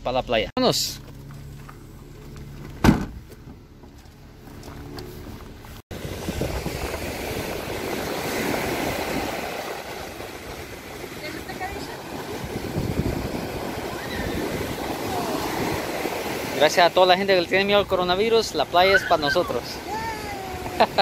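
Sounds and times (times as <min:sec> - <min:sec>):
loud thud: 0:02.8 - 0:03.3
wind buffeting microphone: 0:05.9 - 0:16.6
ocean surf breaking: 0:05.9 - 0:21.0.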